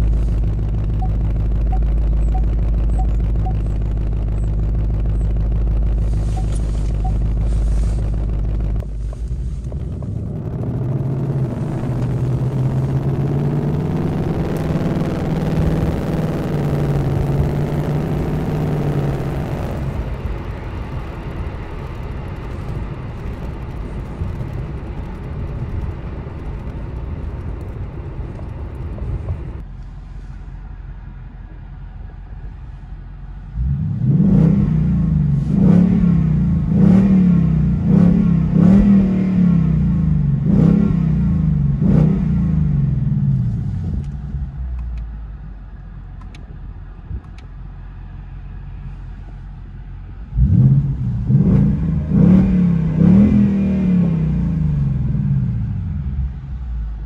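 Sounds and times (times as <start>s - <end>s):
engine revving: 0.0s - 29.6s, 33.5s - 44.6s, 50.2s - 56.4s
car engine idling: 0.0s - 34.2s.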